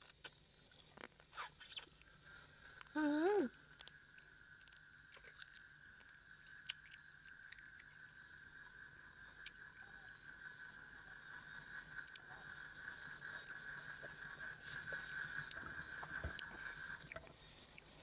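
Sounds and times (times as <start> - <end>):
person chewing quietly: 0.0 - 8.4, 9.3 - 9.6, 11.9 - 12.6, 13.2 - 18.0
faint high-pitched hum: 0.0 - 18.0
sharp mouth clicks: 1.0 - 2.1.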